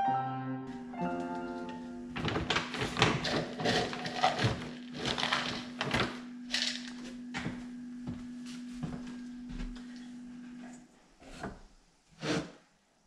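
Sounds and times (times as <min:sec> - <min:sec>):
steady low hum: 0:01.8 - 0:12.0
plastic bag crinkling: 0:02.1 - 0:07.0.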